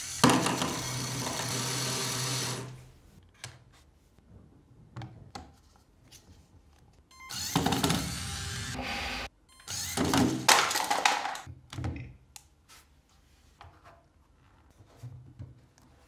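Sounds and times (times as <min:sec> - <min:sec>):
toy electric motor whirring: 0:00.0 - 0:02.7, 0:07.3 - 0:08.8.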